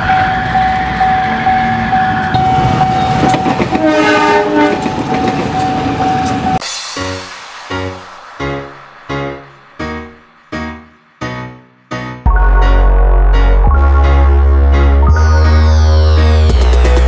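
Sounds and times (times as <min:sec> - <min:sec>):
railroad crossing bell ringing: 0:00.0 - 0:06.7
train wheels clattering on rails: 0:02.1 - 0:08.7
train horn: 0:03.7 - 0:05.0
piano music: 0:06.4 - 0:17.0.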